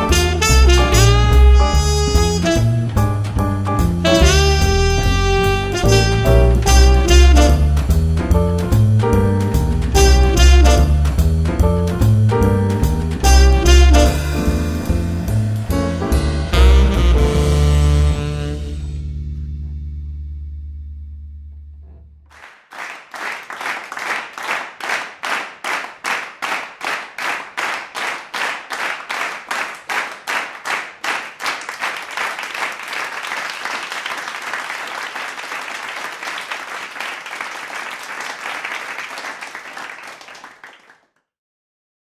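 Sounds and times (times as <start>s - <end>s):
children clapping: 22.3s - 41.2s.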